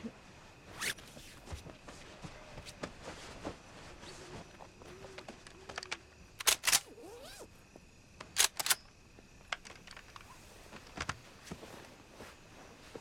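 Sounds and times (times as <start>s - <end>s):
night forest background: 0.0s - 13.0s
sharp clicks of camping gear: 5.1s - 7.5s, 8.2s - 11.2s.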